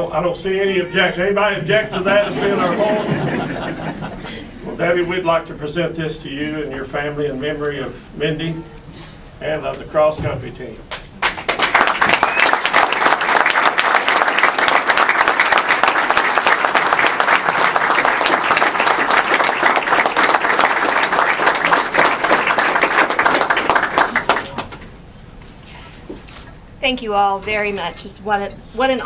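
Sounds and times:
audience applauding: 10.9 - 24.8.

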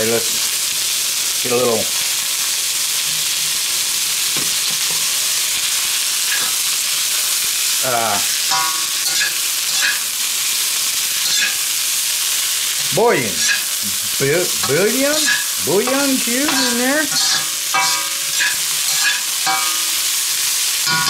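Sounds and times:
onions sizzling in oil: 0.0 - 21.0
spatula scraping a wok: 6.2 - 6.8, 8.3 - 21.0.

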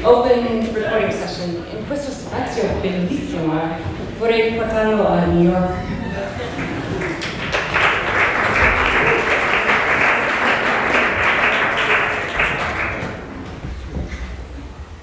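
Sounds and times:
audience applauding: 6.2 - 13.7.

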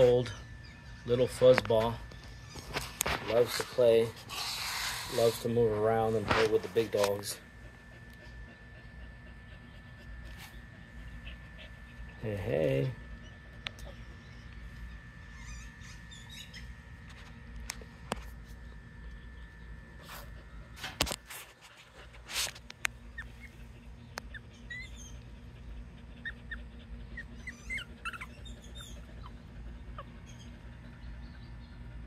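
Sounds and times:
steady low hum: 0.0 - 32.0
puppy squeaking: 4.2 - 5.7, 13.1 - 16.7, 23.1 - 30.9.

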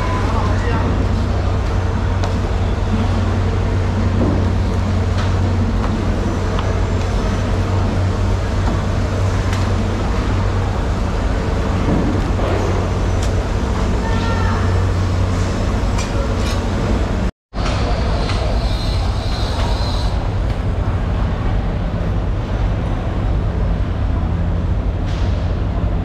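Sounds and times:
low machine hum: 0.0 - 26.0.

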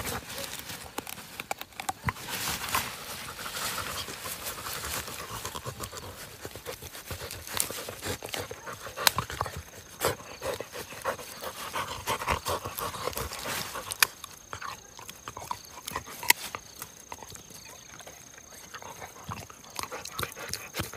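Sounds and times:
dog chewing and crunching: 0.0 - 20.9.

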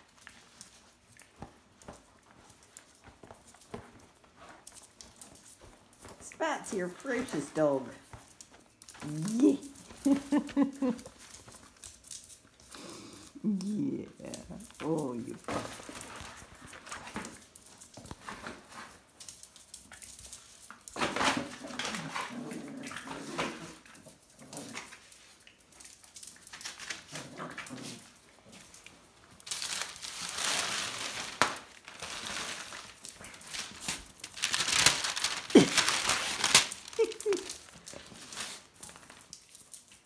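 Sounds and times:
puppies scuffling and pawing: 0.0 - 40.0
paper crinkling: 14.1 - 40.0.

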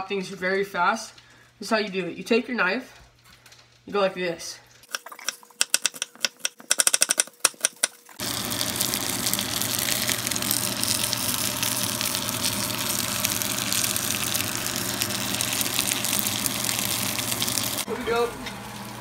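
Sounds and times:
fish sizzling in pan: 8.2 - 19.0.

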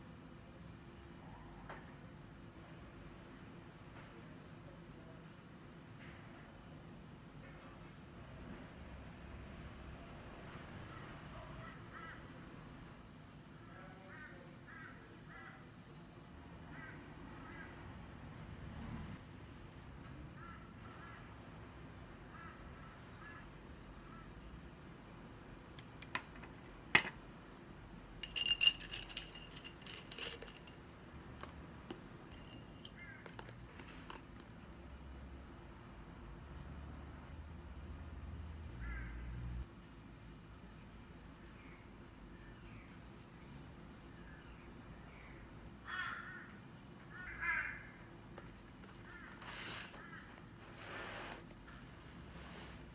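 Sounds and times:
pens clicking and rattling: 28.2 - 31.6.

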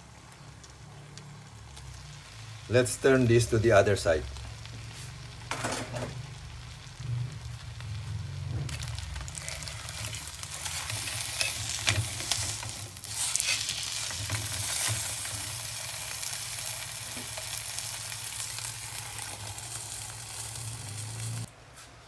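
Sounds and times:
oil sizzling in a wok: 0.0 - 21.5
spatulas scraping a wok: 8.6 - 15.8.

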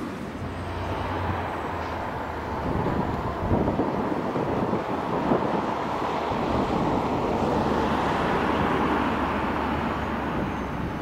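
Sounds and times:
diesel locomotive engine running: 0.0 - 11.0
wind noise on microphone: 0.0 - 11.0.

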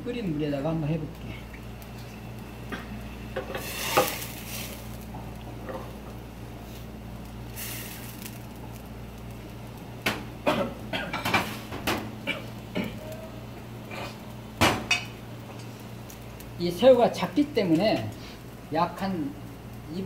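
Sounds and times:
steady low hum: 0.0 - 20.0
short hissing rustles: 3.4 - 5.1, 7.5 - 8.4.

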